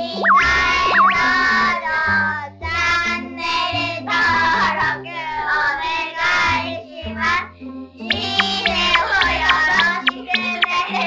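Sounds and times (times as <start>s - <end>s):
music with bouncing bass line: 0.0s - 1.5s, 8.1s - 11.0s
childlike voice singing: 8.1s - 11.0s.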